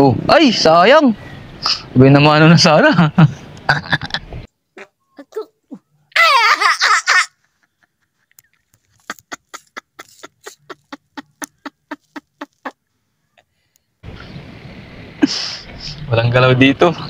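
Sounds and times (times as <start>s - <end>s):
man laughing: 2.8s - 4.3s, 6.3s - 12.8s.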